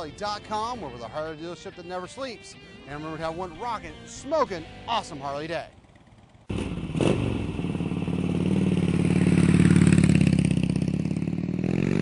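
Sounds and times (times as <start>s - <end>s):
motorcycle engine running: 5.4s - 12.0s.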